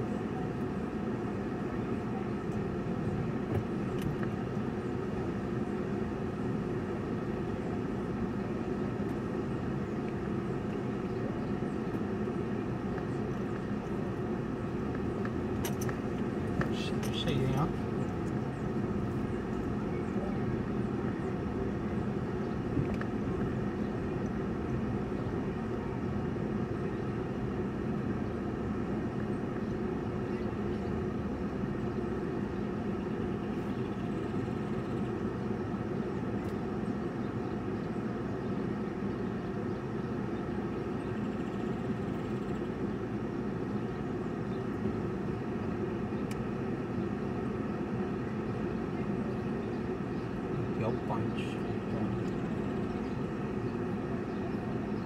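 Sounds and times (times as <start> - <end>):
car engine and road hum: 0.0 - 55.0.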